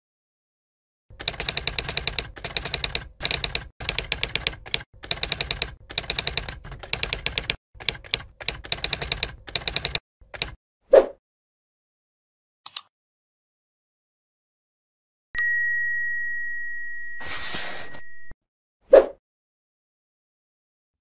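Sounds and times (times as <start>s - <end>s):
typewriter key clacks: 1.2s - 10.6s.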